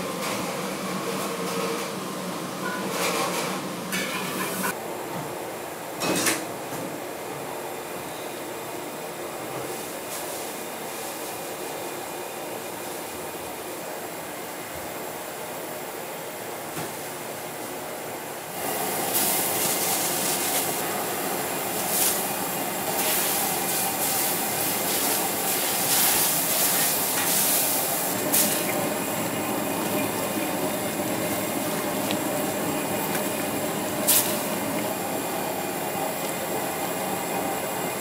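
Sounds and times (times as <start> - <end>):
steaming wok hissing: 18.6 - 38.0.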